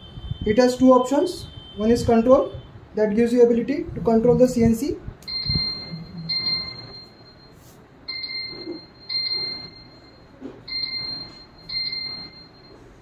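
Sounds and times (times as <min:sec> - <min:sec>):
short high electronic beeps: 0:05.3 - 0:12.8.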